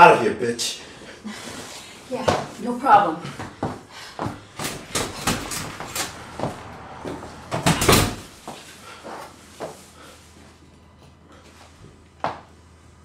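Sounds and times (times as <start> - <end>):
footsteps crossing a room: 1.0 - 12.8
door opening and shutting: 4.5 - 8.3.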